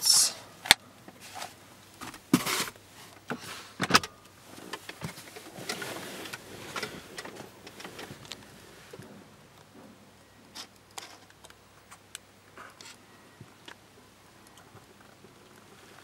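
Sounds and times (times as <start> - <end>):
rustle: 0.0 - 16.0
soft handling noise: 1.0 - 13.8.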